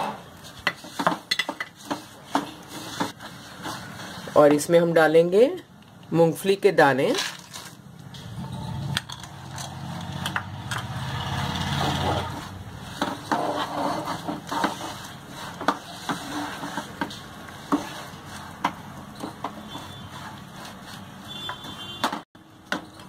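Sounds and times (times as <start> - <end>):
wooden spatula scraping a pan: 0.0 - 4.6, 11.0 - 22.0.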